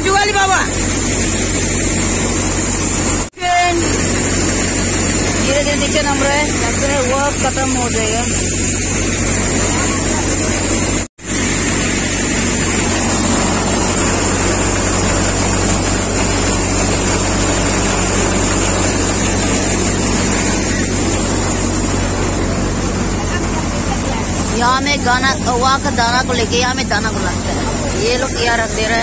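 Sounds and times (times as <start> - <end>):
threshing machine drone: 0.0 - 29.0.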